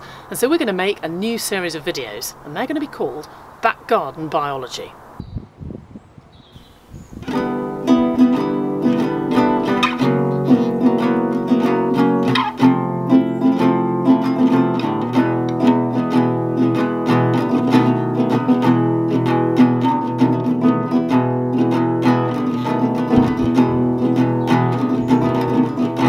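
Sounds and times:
plucked guitar tune: 7.2s - 26.0s.

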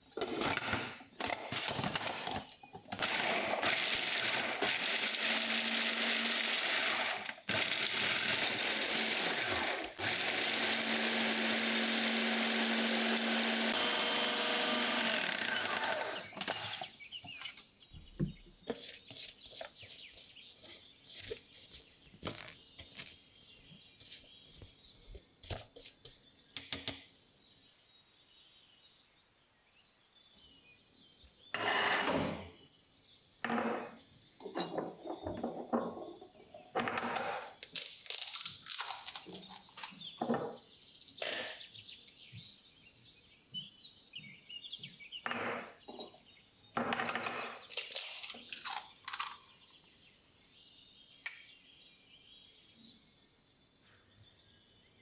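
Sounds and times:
birds chirping: 10.8s - 31.7s, 32.4s - 55.0s
eggshells cracking against glass: 37.6s - 39.9s, 47.7s - 49.5s.

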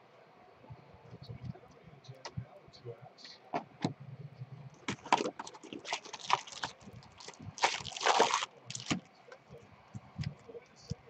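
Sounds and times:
foil packs crinkling and rustling: 4.8s - 9.1s.

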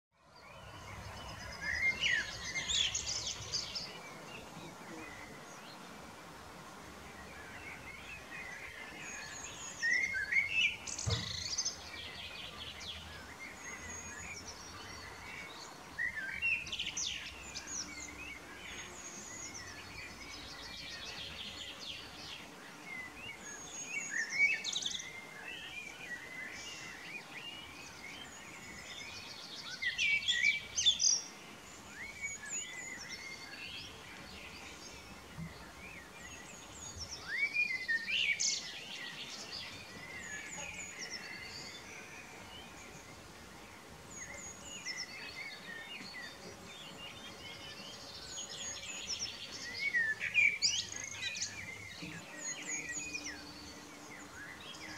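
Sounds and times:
blackbird singing: 0.4s - 5.8s, 7.2s - 54.9s.

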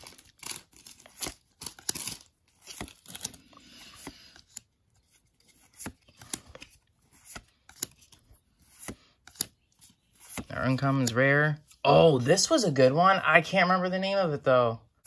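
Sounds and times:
trading cards snapping and rustling: 0.0s - 11.8s.

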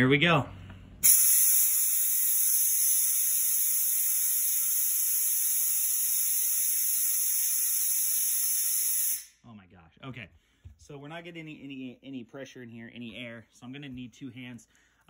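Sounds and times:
compressed air hissing: 1.0s - 9.4s.

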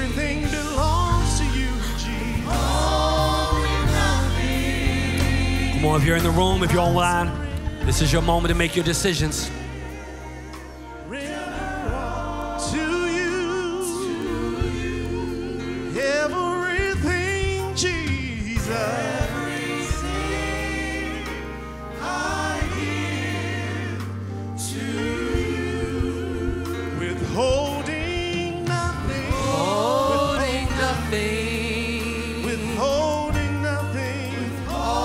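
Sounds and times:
group of voices singing: 0.0s - 35.0s
sustained bass notes: 0.0s - 35.0s
lead singer with vibrato: 10.9s - 35.0s.

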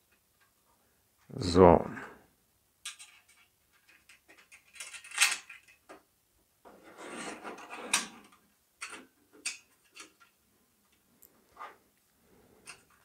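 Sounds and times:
sheet metal parts clicking: 2.8s - 6.0s, 7.2s - 11.0s.

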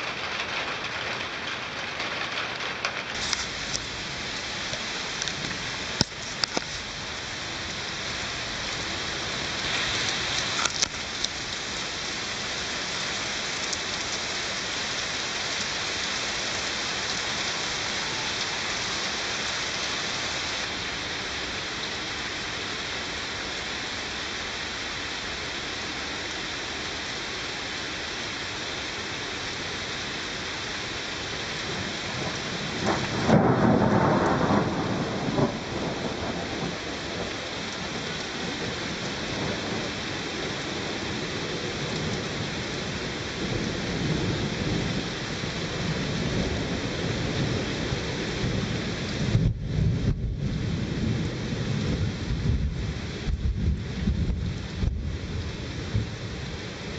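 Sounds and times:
steady rain: 0.0s - 56.9s
thunderclap rumbling: 31.7s - 40.1s, 43.4s - 56.4s.

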